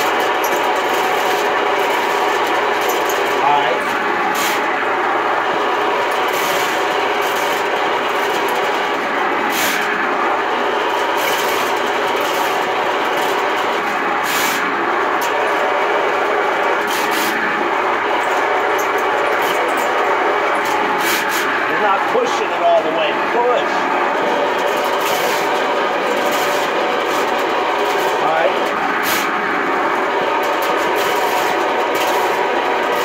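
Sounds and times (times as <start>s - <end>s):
drain cleaning machine motor: 0.0s - 33.0s.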